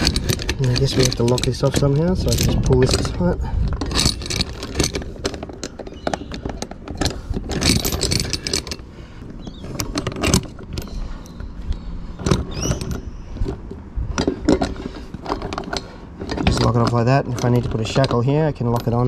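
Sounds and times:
anchor chain clinking and scraping: 0.0 - 19.0.

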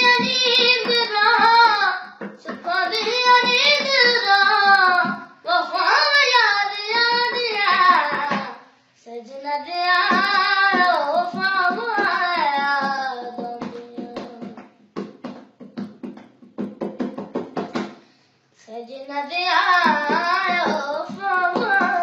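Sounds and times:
boy singing solo: 0.0 - 14.6, 18.6 - 22.0.

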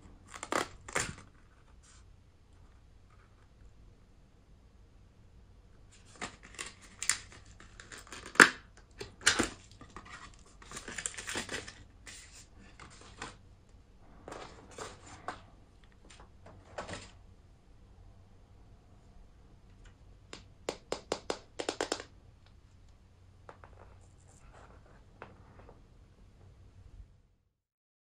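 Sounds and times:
paper rustling against plastic: 5.9 - 13.4, 14.3 - 15.4
plastic case clicks and taps: 20.3 - 22.1.

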